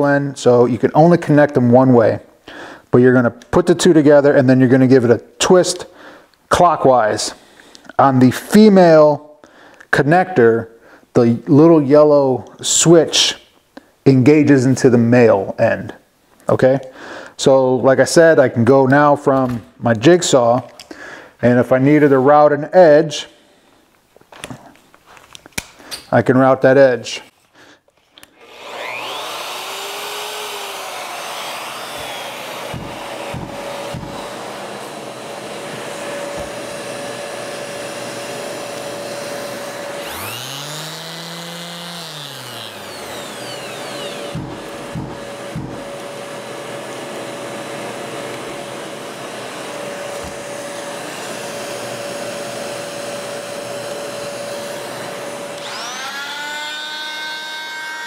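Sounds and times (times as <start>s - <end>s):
power tool spinning up: 28.2s - 58.0s
shop vacuum running: 28.2s - 58.0s.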